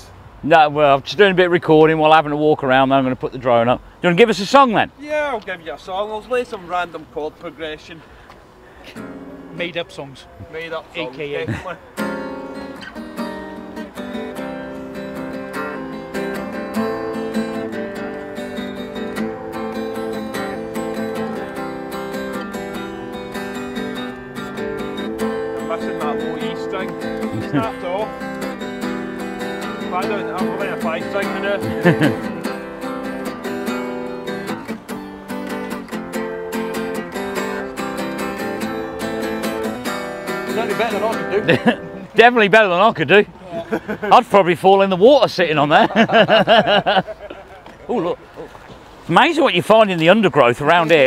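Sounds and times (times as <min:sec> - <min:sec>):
guitar strumming chords: 0:08.9 - 0:09.6, 0:11.8 - 0:42.2.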